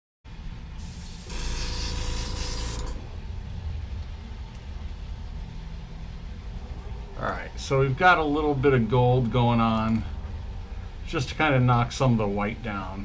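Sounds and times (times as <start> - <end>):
steady low hum: 0.3 - 13.0
airbrush air hiss: 0.8 - 3.0.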